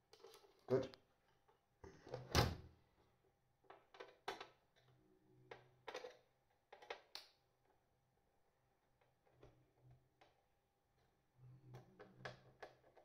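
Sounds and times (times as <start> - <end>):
small parts clicking and knocking: 3.6 - 4.9, 5.5 - 7.4.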